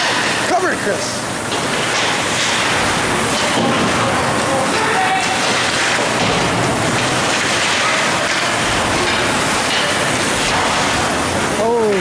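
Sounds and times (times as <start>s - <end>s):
hockey sticks: 3.3s - 11.0s
crowd noise: 3.6s - 10.7s.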